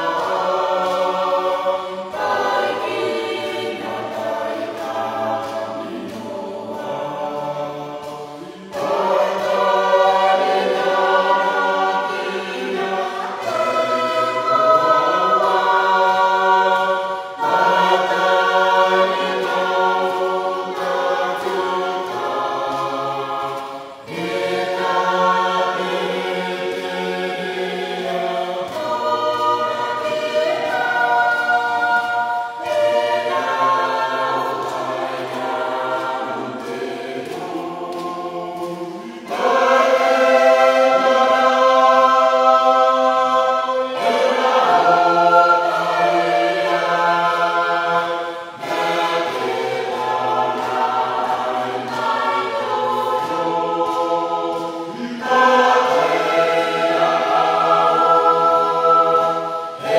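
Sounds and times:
choir singing a hymn: 0.0s - 59.9s.

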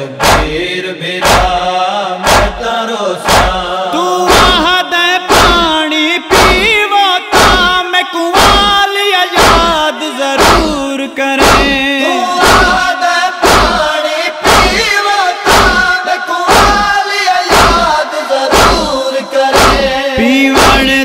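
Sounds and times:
chest-beating thuds: 0.2s - 0.6s, 1.2s - 1.6s, 2.2s - 2.6s, 3.2s - 3.6s, 4.3s - 4.7s, 5.3s - 7.8s, 8.4s - 8.8s, 9.4s - 9.8s, 10.4s - 10.8s, 11.4s - 21.0s.

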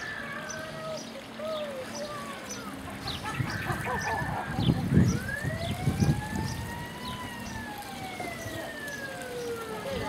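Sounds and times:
siren wailing: 3.4s - 10.0s.

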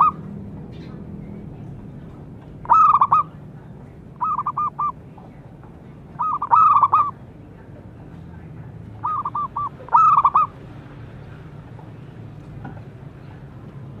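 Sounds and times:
dove cooing: 0.0s - 0.2s, 2.6s - 3.4s, 4.2s - 5.0s, 6.2s - 7.2s, 9.0s - 10.5s.

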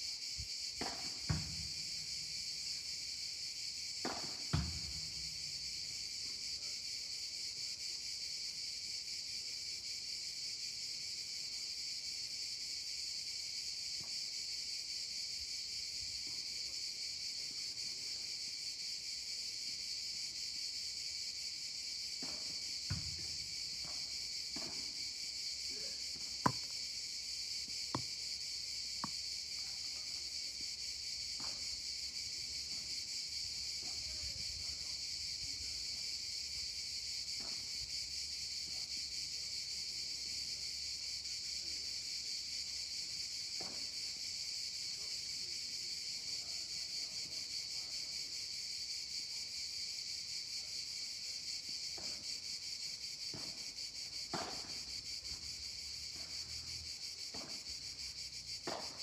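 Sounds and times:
cicadas chorus: 0.0s - 59.0s
rackets hitting ball: 26.4s - 26.8s.

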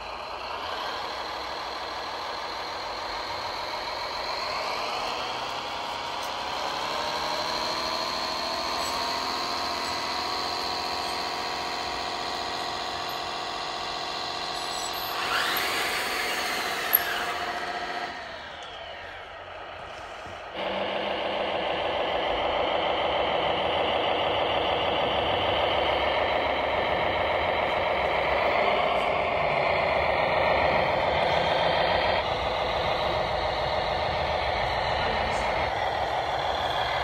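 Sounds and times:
model tractors mechanical whine: 0.0s - 37.0s.

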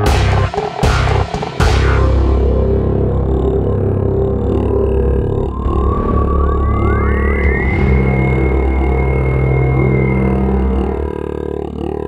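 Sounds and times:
low droning background music: 0.0s - 12.0s.

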